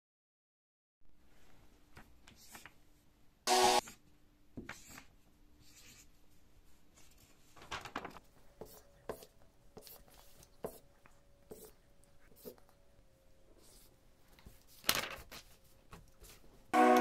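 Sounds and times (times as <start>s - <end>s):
highlighter scratching on paper: 4.6s - 6.2s, 8.6s - 12.7s, 13.6s - 13.9s
paper page rustling: 7.1s - 8.3s, 13.6s - 16.5s.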